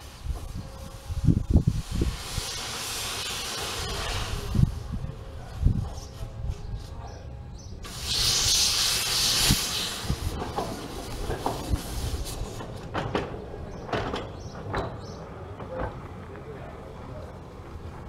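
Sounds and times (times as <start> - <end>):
steam locomotive hissing steam: 0.0 - 6.9, 7.8 - 13.5
train knocks and clanks: 10.0 - 16.7.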